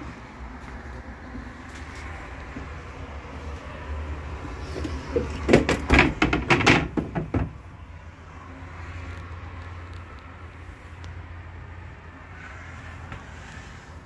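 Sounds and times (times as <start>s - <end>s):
cover clunking on metal grates: 4.8s - 7.6s.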